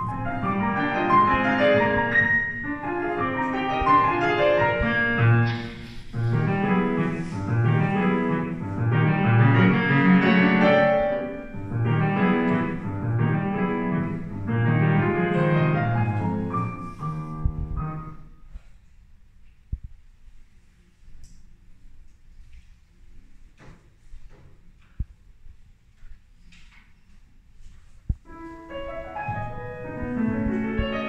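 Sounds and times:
grand piano piece: 0:00.0 - 0:18.5, 0:28.1 - 0:31.0.

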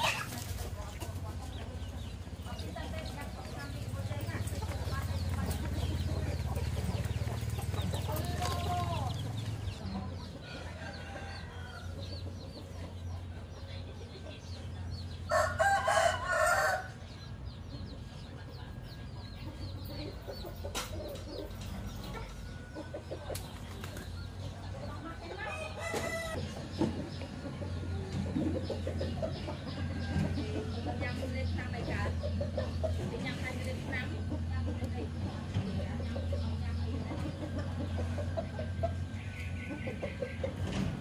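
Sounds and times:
chicken clucking: 0:00.0 - 0:16.8, 0:17.5 - 0:41.0
rooster crowing: 0:15.3 - 0:16.9.

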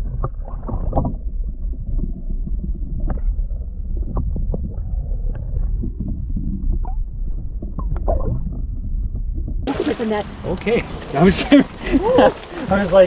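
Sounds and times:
water splash: 0:00.0 - 0:01.3, 0:09.7 - 0:13.0
muffled underwater rumble: 0:00.0 - 0:13.0.

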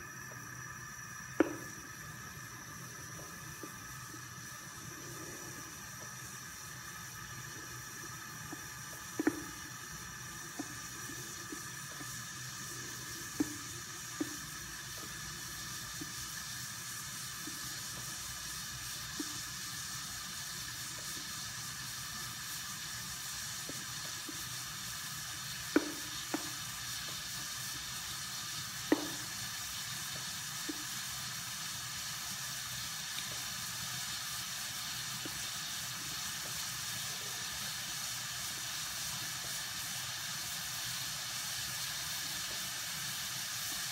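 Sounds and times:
water heating hiss in pot: 0:00.0 - 0:43.9
ticks and pops: 0:01.2 - 0:05.1, 0:05.8 - 0:18.2, 0:18.8 - 0:19.6, 0:23.6 - 0:27.8, 0:28.8 - 0:29.4, 0:35.2 - 0:35.5.

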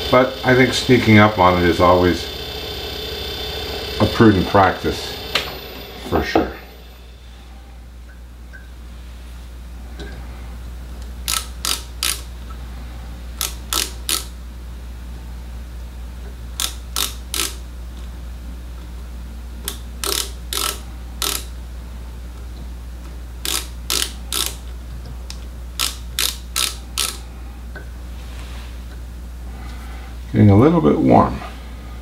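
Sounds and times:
steady low hum: 0:00.0 - 0:32.0
micrometer ratchet clicking: 0:11.2 - 0:12.5, 0:13.4 - 0:14.4, 0:16.6 - 0:17.7, 0:19.6 - 0:21.6, 0:23.4 - 0:24.7, 0:25.3 - 0:27.2.

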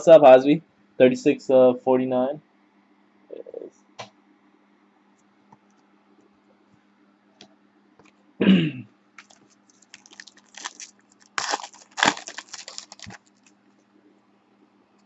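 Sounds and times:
foil pack tearing: 0:09.2 - 0:13.5
foil wrapper crinkling: 0:09.2 - 0:13.6.

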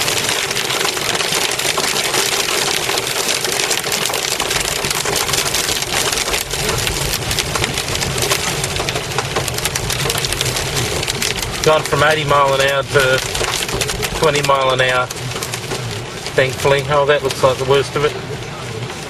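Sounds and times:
hail and rain on a car: 0:00.0 - 0:19.0
low rumble: 0:04.4 - 0:19.0.

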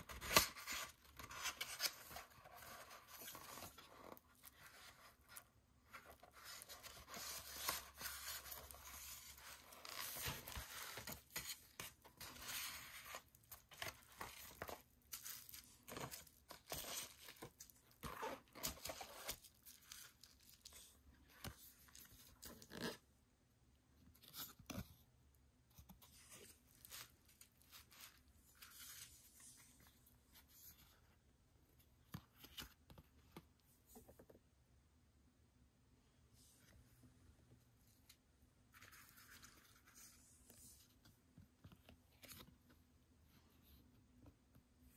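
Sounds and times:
paper and card rustling: 0:00.0 - 0:23.0.

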